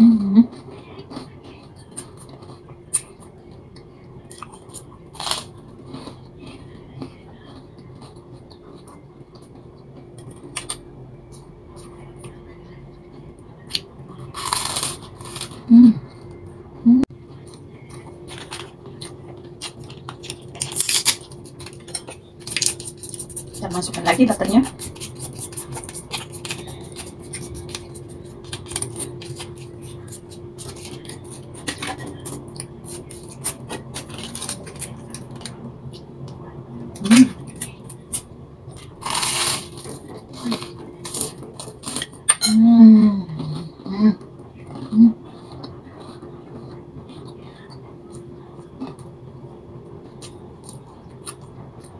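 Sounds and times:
chewing: 0:00.4 - 0:16.4, 0:17.3 - 0:42.3, 0:44.6 - 0:49.1, 0:50.0 - 0:51.9
person humming with full mouth: 0:15.7 - 0:16.0, 0:16.8 - 0:17.1
plastic packet crinkling: 0:19.6 - 0:32.3.

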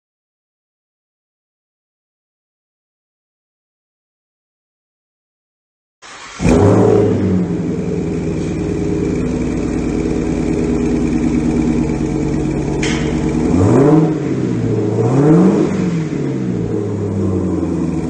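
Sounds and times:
car engine idling and revving: 0:06.0 - 0:18.0.

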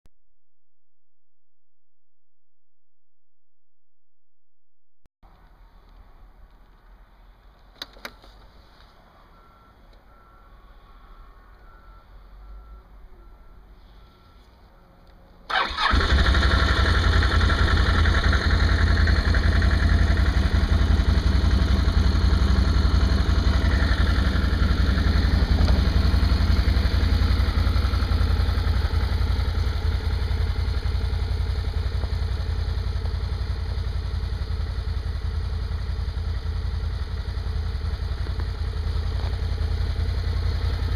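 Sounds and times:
atv engine running: 0:15.5 - 0:40.9.

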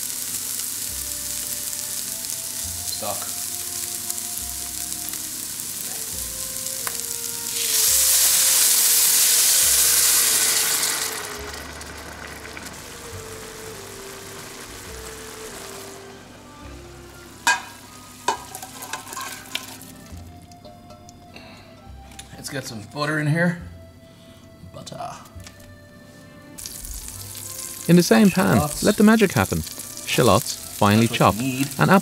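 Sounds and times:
stock poured into hot pan: 0:00.0 - 0:16.1, 0:17.2 - 0:20.2, 0:26.6 - 0:32.0
vegetables sizzling in a pan: 0:00.0 - 0:20.4, 0:26.6 - 0:32.0
pan clanking against metal pot: 0:17.4 - 0:19.8.

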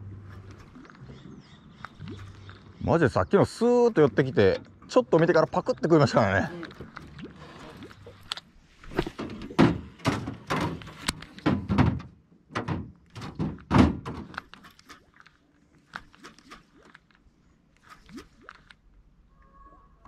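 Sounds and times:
dull knocks and thumps: 0:09.0 - 0:14.3.

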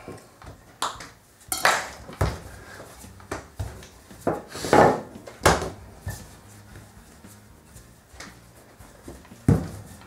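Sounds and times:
rolling pin rubbing dough: 0:02.4 - 0:10.0.

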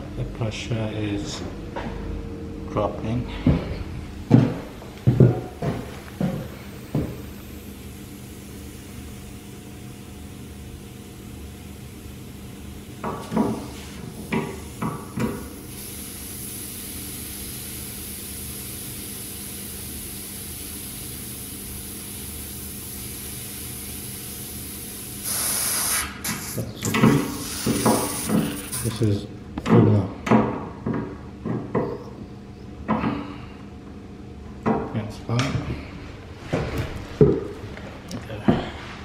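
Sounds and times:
air hissing from radiator valve: 0:06.0 - 0:29.0.

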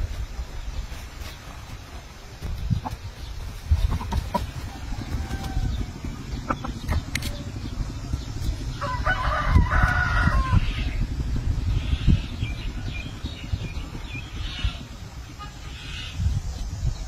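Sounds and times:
steady low rumble: 0:00.0 - 0:17.0
rooster crowing: 0:04.6 - 0:06.2, 0:08.7 - 0:11.0.

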